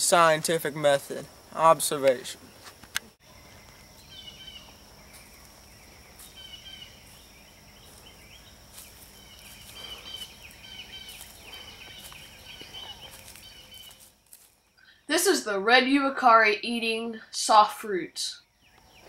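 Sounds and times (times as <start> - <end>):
birds chirping: 0.0 - 19.0
faint outdoor background noise: 0.0 - 19.0
footsteps in dry leaves: 5.0 - 14.7.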